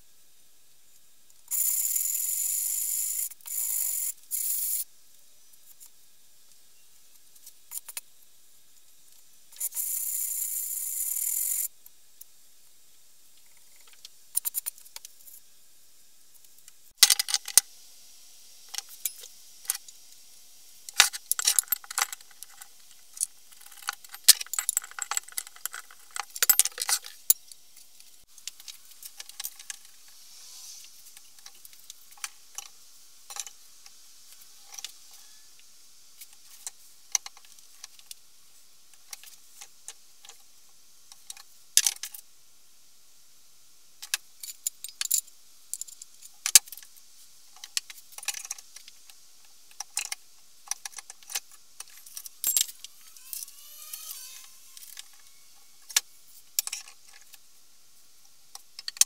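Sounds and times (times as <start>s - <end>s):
metallic clinking and rattling: 21.3s - 27.4s, 50.8s - 53.4s.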